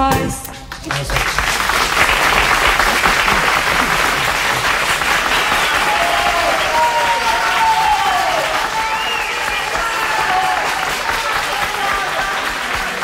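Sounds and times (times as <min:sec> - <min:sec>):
audience applauding: 0:00.6 - 0:13.0
crowd calling out: 0:03.3 - 0:13.0.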